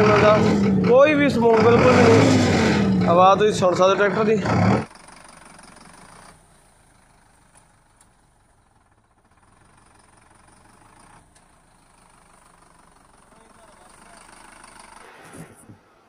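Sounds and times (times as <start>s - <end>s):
diesel tractor engine idling: 0.0s - 15.1s.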